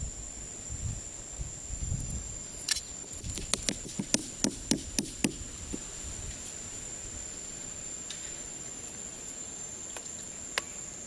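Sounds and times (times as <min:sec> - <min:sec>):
crickets droning: 0:00.0 - 0:11.0
wooden stake being pounded: 0:03.2 - 0:05.8.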